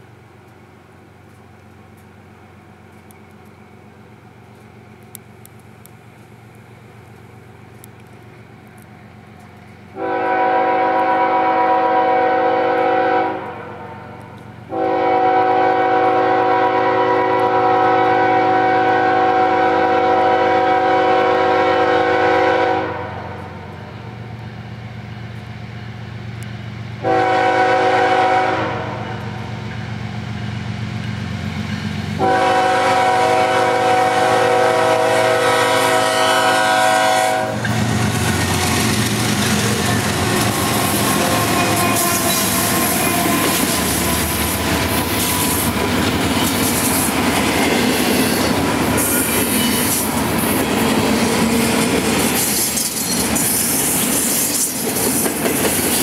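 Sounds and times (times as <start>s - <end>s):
locomotive engine and wheel noise: 0.0s - 11.9s, 12.6s - 27.2s, 28.6s - 56.0s
train rumble: 0.0s - 56.0s
locomotive air horn: 9.9s - 23.6s, 27.0s - 29.4s, 32.2s - 37.7s, 39.7s - 44.6s.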